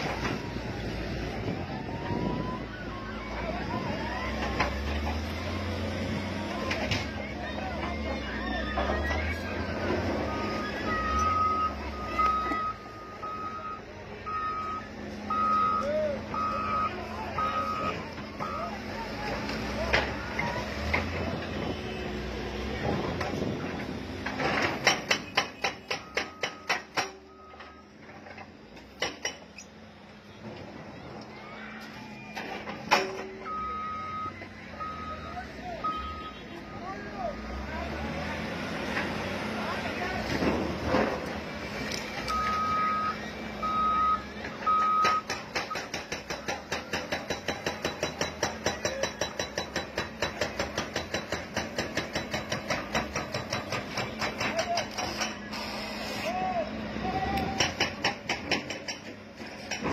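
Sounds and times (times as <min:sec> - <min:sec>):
diesel engine clattering: 0:01.6 - 0:31.4, 0:36.8 - 0:59.9
reversing alarm beeping: 0:08.1 - 0:18.8, 0:25.8 - 0:28.0, 0:32.0 - 0:37.7, 0:42.3 - 0:45.9.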